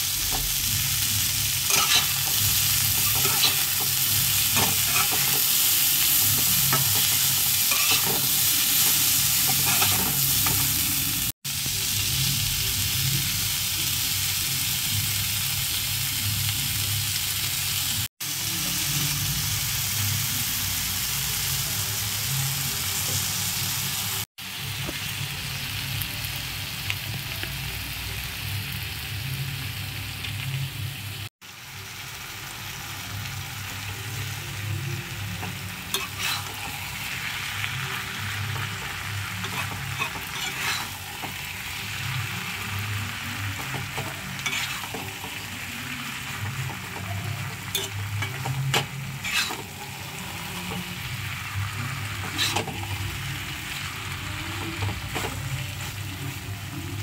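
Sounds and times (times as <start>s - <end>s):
food sizzling in a hot pan: 0.0s - 57.0s
metal spatula scraping pan: 1.6s - 10.7s, 35.4s - 41.6s, 43.4s - 45.6s, 46.2s - 51.0s, 51.7s - 53.3s.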